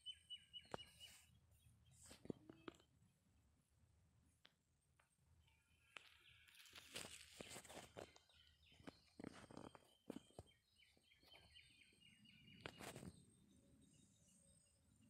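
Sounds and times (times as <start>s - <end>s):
small bird chirping: 0.0s - 3.2s, 5.0s - 15.0s
grass and leaves brushing: 6.4s - 8.2s.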